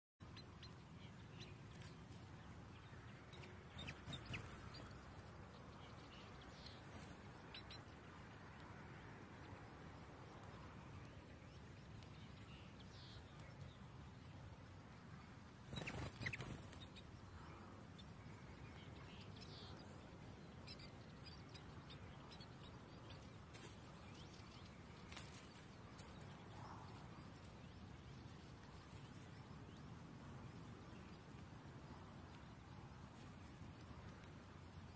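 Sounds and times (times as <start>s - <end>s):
nestlings squeaking: 15.7s - 17.0s.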